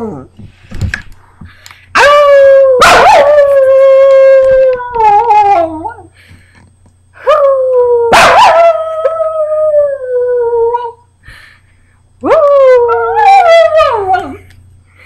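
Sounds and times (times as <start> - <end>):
small dog howling: 2.0 - 6.1, 7.2 - 11.0, 12.2 - 14.5.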